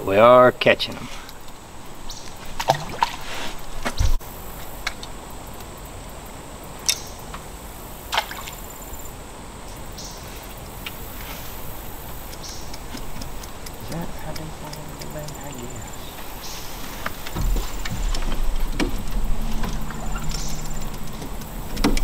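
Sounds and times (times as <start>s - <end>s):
dull thump: 3.8s - 4.2s, 16.8s - 22.0s
light clicks and knocks: 12.1s - 22.0s
water lapping against boat: 12.3s - 22.0s.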